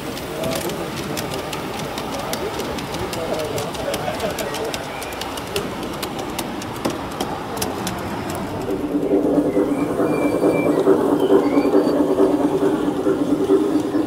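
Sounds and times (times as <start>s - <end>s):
model train drive whirring: 0.0s - 14.0s
wheels rumbling over rails: 0.0s - 14.0s.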